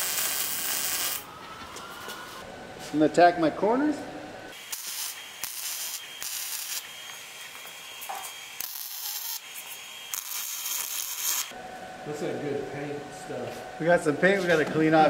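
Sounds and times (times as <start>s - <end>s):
welding arc crackling hiss: 0.0s - 1.3s, 4.5s - 11.6s.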